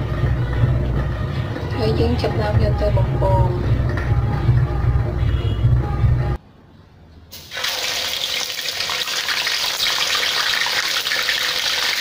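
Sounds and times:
fish sizzling in hot oil: 0:07.4 - 0:12.0.

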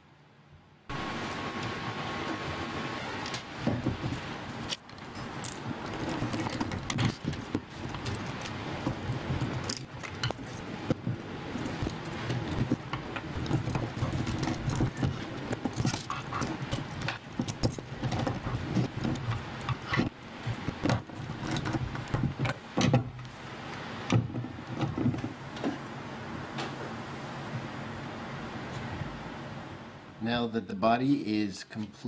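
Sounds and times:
plastic parts clicking and rattling: 0:04.7 - 0:23.0.

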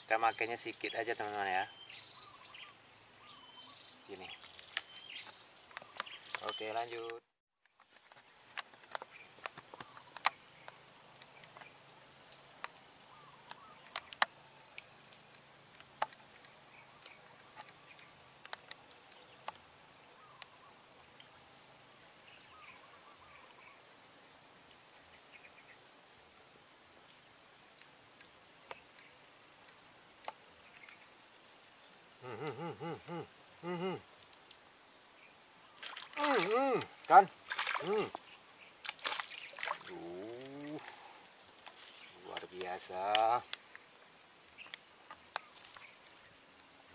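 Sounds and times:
insects droning: 0:00.0 - 0:46.9
rapid repeated pitched calls: 0:32.2 - 0:34.0, 0:35.8 - 0:38.4.

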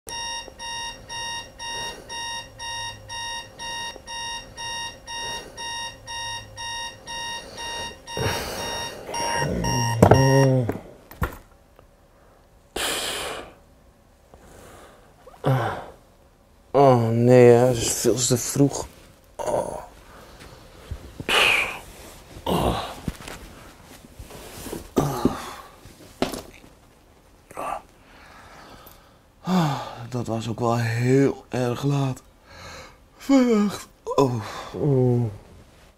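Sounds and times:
digital alarm clock beeping: 0:00.1 - 0:10.5
man groaning and sighing: 0:08.1 - 0:10.8, 0:15.2 - 0:16.0, 0:19.4 - 0:19.9, 0:22.4 - 0:23.1, 0:25.0 - 0:25.8, 0:29.4 - 0:30.1, 0:33.2 - 0:35.4
rustling: 0:18.7 - 0:25.0.

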